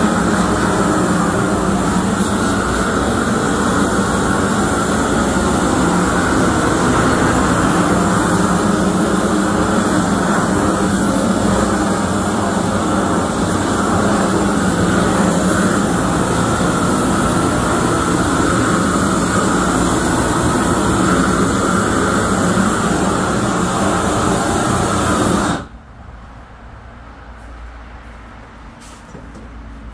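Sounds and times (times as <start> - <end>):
propane torch flame rushing: 0.0 - 25.7.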